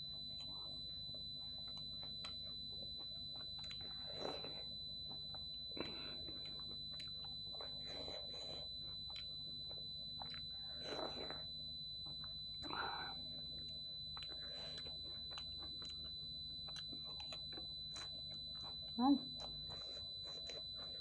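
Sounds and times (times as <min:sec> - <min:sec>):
wet chewing squelches: 0:00.0 - 0:21.0.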